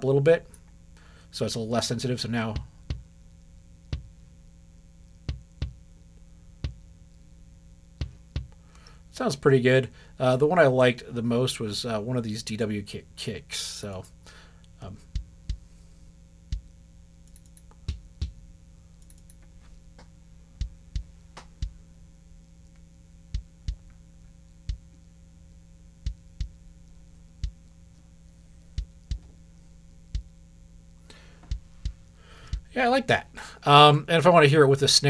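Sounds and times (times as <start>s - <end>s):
kick drum thumps: 2.5s - 3.2s, 3.9s - 4.2s, 5.2s - 5.9s, 6.6s - 6.9s, 8.0s - 8.6s, 15.0s - 15.7s, 16.5s - 16.8s, 17.8s - 18.5s, 20.0s - 21.8s, 23.3s - 23.9s, 24.6s - 24.9s, 26.0s - 26.6s, 27.4s - 27.6s, 28.8s - 29.4s, 30.1s - 30.4s, 31.4s - 32.8s.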